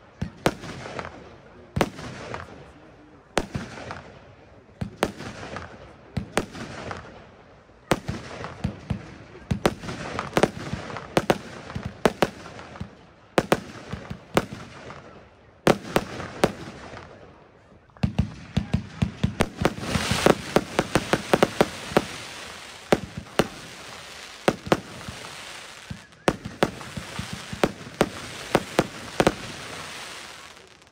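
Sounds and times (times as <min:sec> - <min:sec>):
firework shots bursting: 0:18.0 - 0:30.9
crackling hiss of bursting stars: 0:19.4 - 0:30.9.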